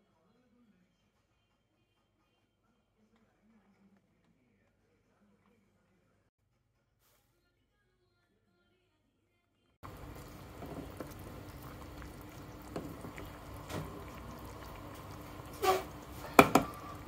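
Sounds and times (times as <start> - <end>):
water boiling in a pot: 9.8 - 17.0
wooden spoon knocking: 12.5 - 17.0.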